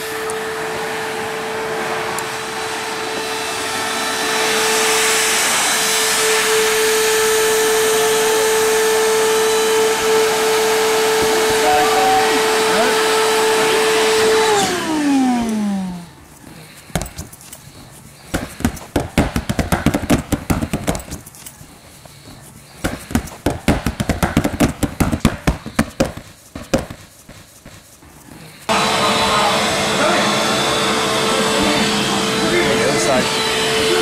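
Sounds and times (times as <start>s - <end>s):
air blower whining: 0.0s - 34.0s
hands slapping plastic ball: 16.9s - 17.5s, 18.3s - 21.5s, 22.8s - 28.0s.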